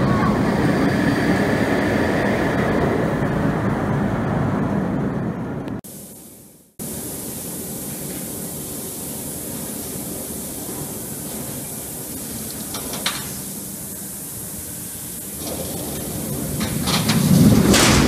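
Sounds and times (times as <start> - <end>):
steady hissing noise: 5.7 - 18.0.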